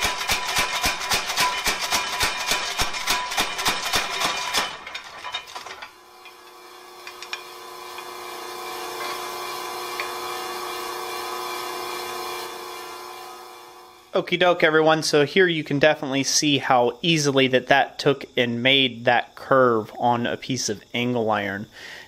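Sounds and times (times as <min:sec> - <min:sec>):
power hammer striking iron: 0:00.0 - 0:10.3
motor humming: 0:05.7 - 0:14.1.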